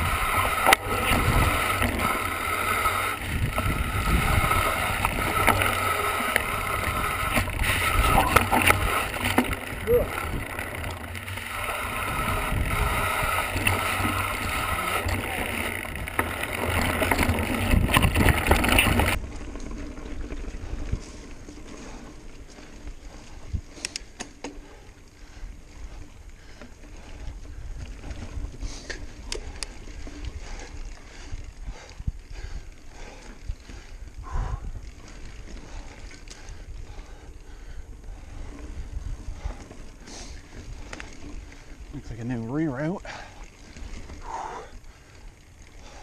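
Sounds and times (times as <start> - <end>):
wind rushing over microphone: 0.0 - 19.2
bike rattling over ground: 0.0 - 46.0
bike tyre noise: 0.0 - 46.0.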